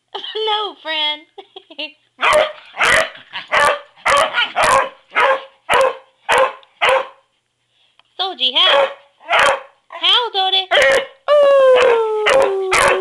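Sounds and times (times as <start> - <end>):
dog barking: 2.2 - 7.3, 8.6 - 9.8, 10.7 - 11.2, 12.3 - 13.0.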